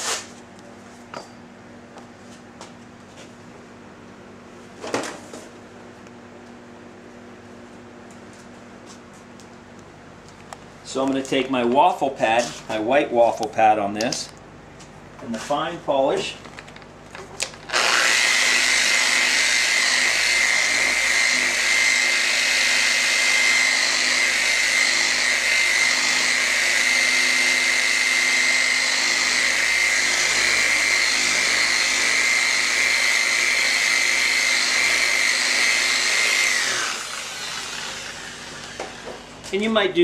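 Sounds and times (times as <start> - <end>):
electric polisher whining: 17.6 - 39.4.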